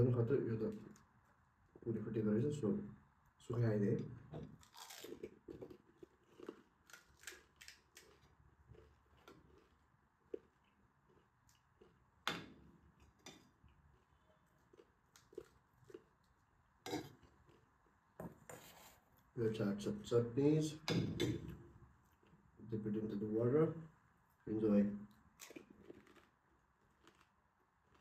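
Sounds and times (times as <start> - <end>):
chewing and crunching: 4.6 - 12.2, 12.9 - 17.8, 25.1 - 28.0.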